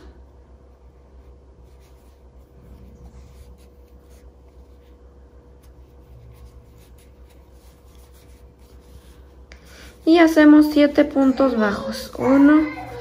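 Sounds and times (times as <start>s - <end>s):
crochet hook scratching yarn: 1.2s - 5.0s, 5.6s - 9.2s.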